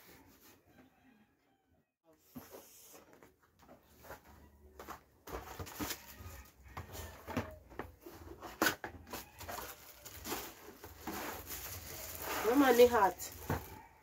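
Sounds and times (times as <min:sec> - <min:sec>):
packaging crinkling and rustling: 0:05.3 - 0:14.0.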